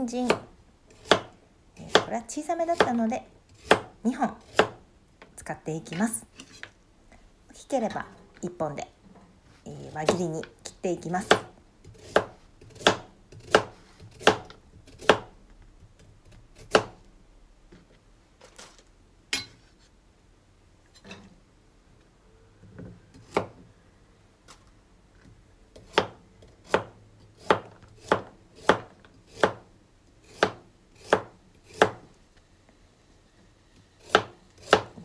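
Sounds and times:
knife slicing carrots on board: 0.2 - 4.8, 11.2 - 15.3, 25.8 - 29.7, 30.3 - 32.0, 34.0 - 35.0.

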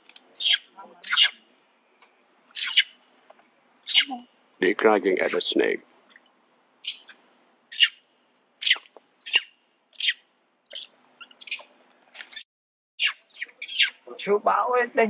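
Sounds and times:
macaques giving alarm calls: 0.4 - 1.5, 2.5 - 3.0, 3.8 - 4.4, 5.2 - 5.5, 6.8 - 11.7, 13.0 - 14.1.

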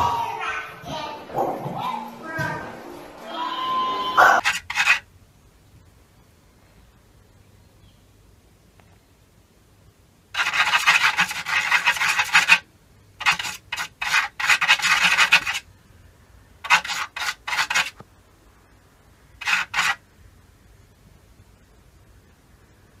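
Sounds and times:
claws scratching wooden wall: 4.4 - 5.1, 10.4 - 15.7, 16.6 - 18.0, 19.4 - 20.0.

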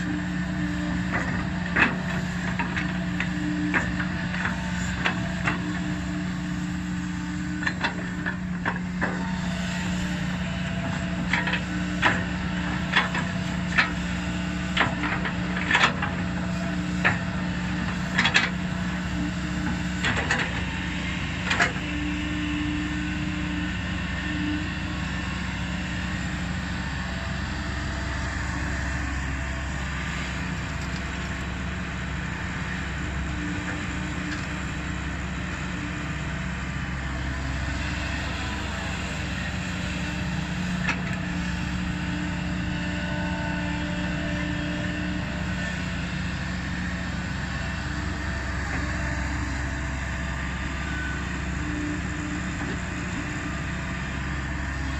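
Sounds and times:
excavator diesel engine running: 0.0 - 54.9.

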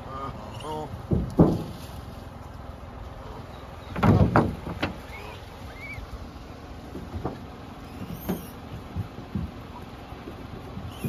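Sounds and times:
faint bird chirps: 5.0 - 6.2.

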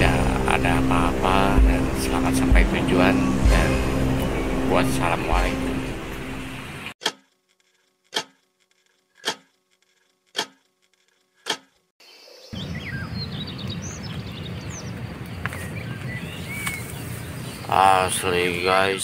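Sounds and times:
birds chirping: 0.0 - 7.0, 12.0 - 19.0
outdoor background noise: 6.0 - 19.0.

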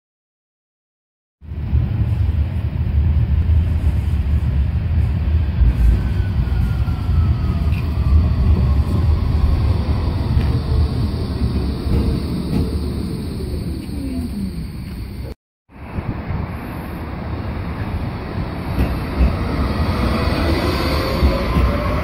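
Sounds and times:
tram rumble: 1.4 - 22.0.

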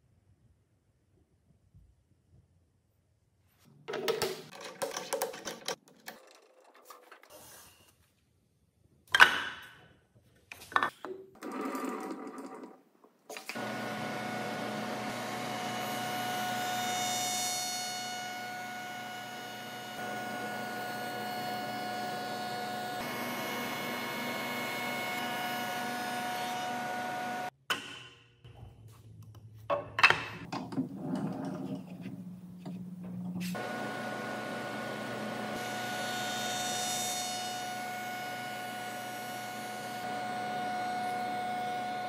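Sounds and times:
knocks and clatters: 3.8 - 7.3.

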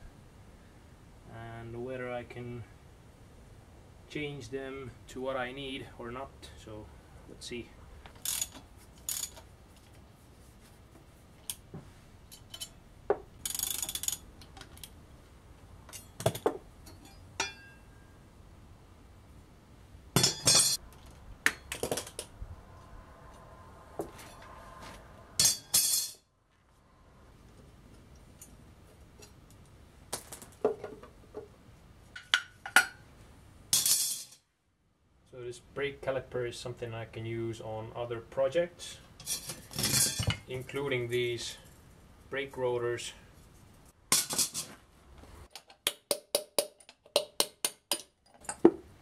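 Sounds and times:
metal tools and bolts clinking: 8.2 - 9.5, 12.3 - 12.8, 13.4 - 14.9, 15.9 - 18.0, 20.2 - 22.3, 25.4 - 26.2, 33.7 - 34.4, 39.2 - 40.6, 44.1 - 44.8.

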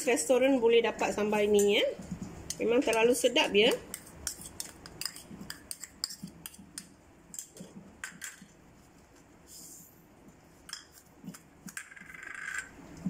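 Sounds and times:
spoon scraping and clinking bowls: 4.0 - 7.5.

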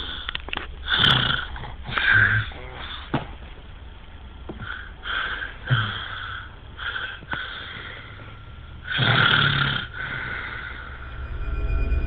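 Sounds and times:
man snoring: 0.8 - 3.1, 4.8 - 7.9, 8.8 - 10.9.

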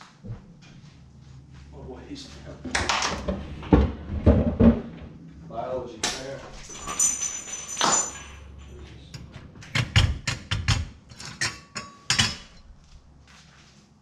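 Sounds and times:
wooden cabinet doors knocking: 2.7 - 5.2
small items clinking: 6.5 - 8.9.

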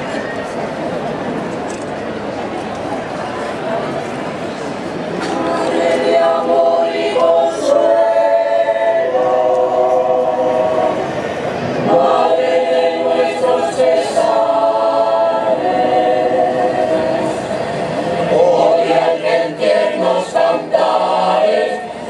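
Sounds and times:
mixed choir singing: 5.1 - 22.0.

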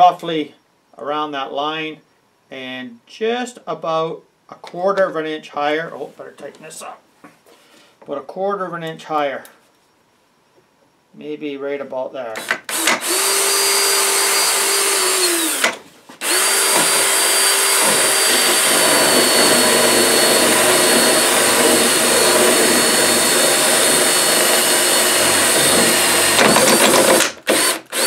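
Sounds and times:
drill bit cutting plastic: 12.4 - 28.0
power drill whining: 12.4 - 28.0.

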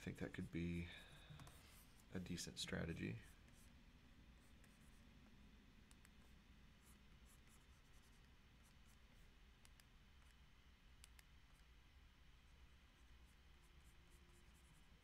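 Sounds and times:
low room hum: 0.0 - 15.0
stylus ticking and scratching on screen: 5.9 - 11.8.

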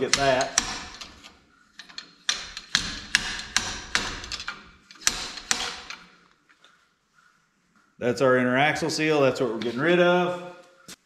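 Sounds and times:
slide hammer metallic clacks: 0.0 - 6.1.

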